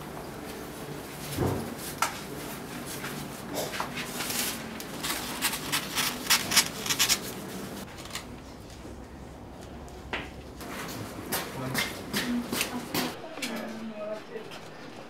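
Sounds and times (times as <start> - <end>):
paper rustling: 1.3 - 8.8
scissors snipping paper: 4.2 - 7.4.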